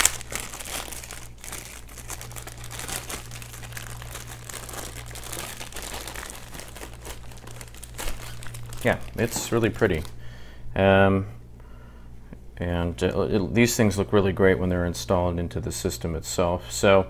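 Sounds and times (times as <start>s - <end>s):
plastic bag crinkling: 0.0s - 10.2s.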